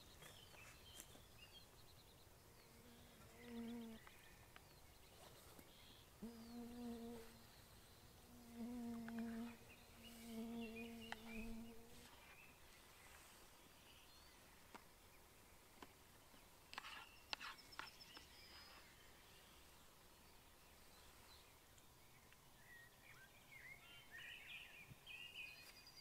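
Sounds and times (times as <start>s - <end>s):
open-air ambience: 0.0s - 26.0s
faint ticks: 8.9s - 9.4s.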